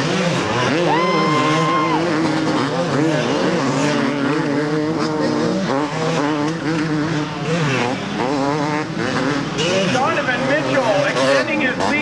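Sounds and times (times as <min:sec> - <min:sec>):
motocross bikes revving: 0:00.0 - 0:12.0.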